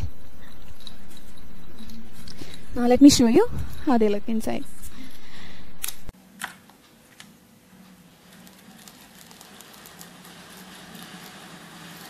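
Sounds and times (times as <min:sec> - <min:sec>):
paper stars pattering in jar: 0:08.2 - 0:12.0.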